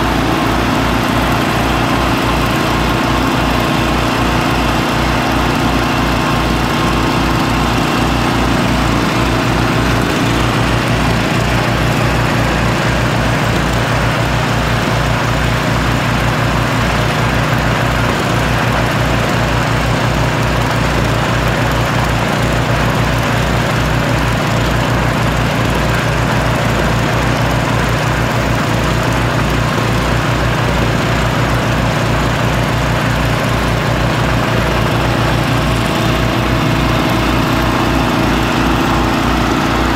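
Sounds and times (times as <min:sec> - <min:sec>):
small gas engine running: 0:00.0 - 0:39.9
tractor engine running: 0:00.0 - 0:39.9.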